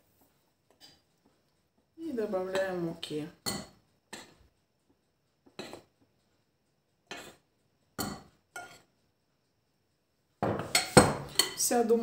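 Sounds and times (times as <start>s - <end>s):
spoon clinking on mixing bowl: 3.4s - 4.4s, 8.0s - 8.9s, 10.4s - 11.7s.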